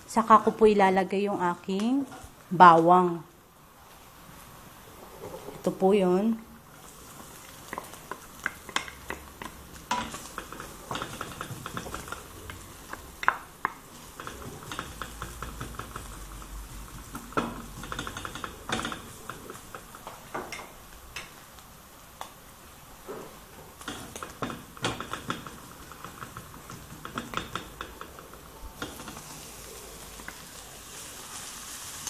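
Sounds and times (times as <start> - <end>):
hot oil sizzling: 5.6 - 32.0
wooden spatula scraping frying pan: 6.8 - 20.6, 23.1 - 32.0.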